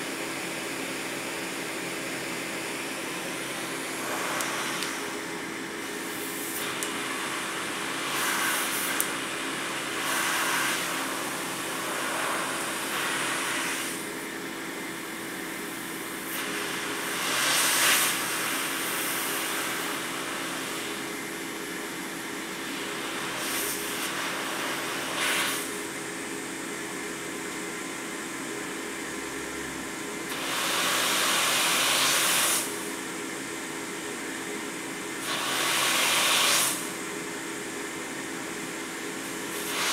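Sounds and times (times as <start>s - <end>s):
ventilator blower humming: 0.0s - 39.9s.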